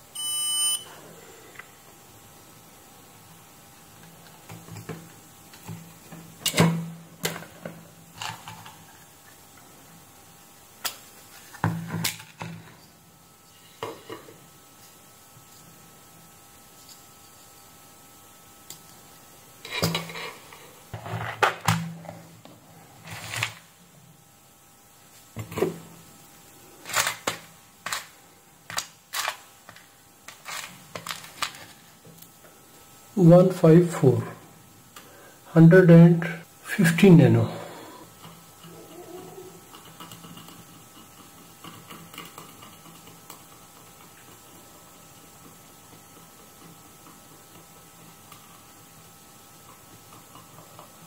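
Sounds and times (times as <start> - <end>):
small components clicking and rattling: 39.7 - 44.7.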